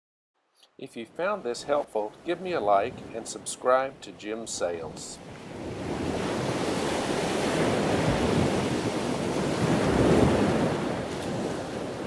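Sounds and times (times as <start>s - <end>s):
waves washing: 1.0s - 12.0s
wind buffeting microphone: 4.8s - 12.0s.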